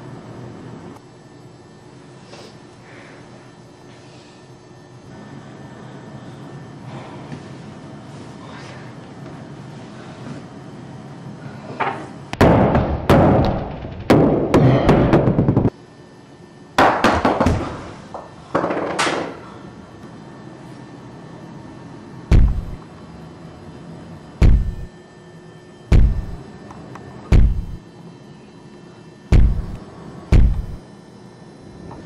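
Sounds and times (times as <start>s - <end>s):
heavy deep thuds: 22.3s - 22.8s, 24.4s - 24.9s, 25.9s - 26.4s, 27.3s - 27.8s, 29.3s - 30.8s
loud sharp impacts: 22.3s - 22.8s, 24.4s - 24.9s, 25.9s - 26.4s, 27.3s - 27.8s, 29.3s - 30.8s.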